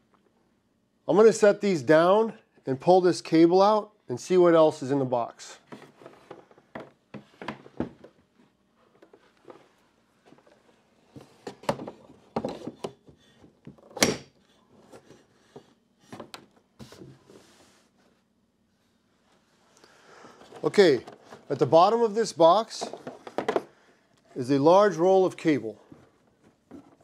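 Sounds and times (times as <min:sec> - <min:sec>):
unpacking knocks and thumps: 0:05.6 - 0:17.3, 0:22.7 - 0:23.8, 0:25.8 - 0:27.0.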